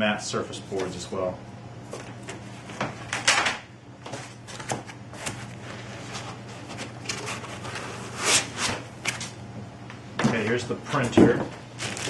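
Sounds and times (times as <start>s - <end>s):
foam and cardboard rustling: 4.1s - 9.4s, 11.2s - 12.0s.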